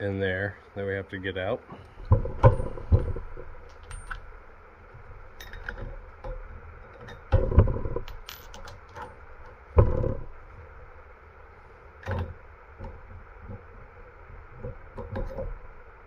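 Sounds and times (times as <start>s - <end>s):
metal sockets clinking: 3.7s - 4.3s, 8.0s - 9.2s.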